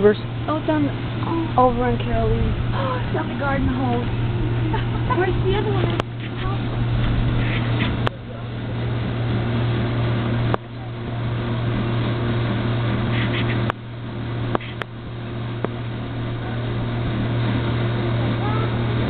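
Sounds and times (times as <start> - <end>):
low mechanical hum with rushing: 0.0 - 19.0
sharp clicks: 14.5 - 14.9.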